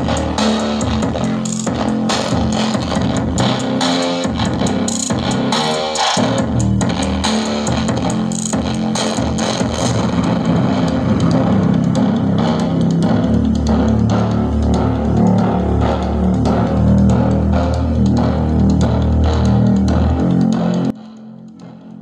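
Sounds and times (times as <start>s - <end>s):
music with guitar and heavy bass: 0.0s - 22.0s
low hum: 9.6s - 20.0s.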